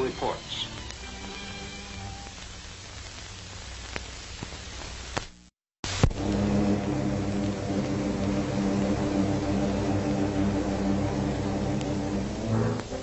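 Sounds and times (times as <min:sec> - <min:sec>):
film crackles: 0:00.0 - 0:13.0
film soundtrack hiss: 0:00.0 - 0:13.0.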